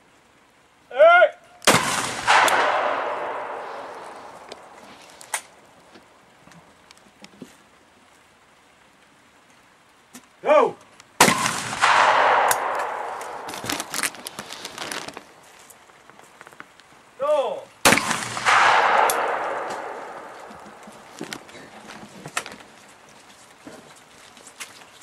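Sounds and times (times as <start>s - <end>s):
person shouting: 0.9s - 1.4s, 10.4s - 10.8s
shotgun shots: 1.7s - 4.8s, 11.2s - 14.8s, 17.8s - 21.1s.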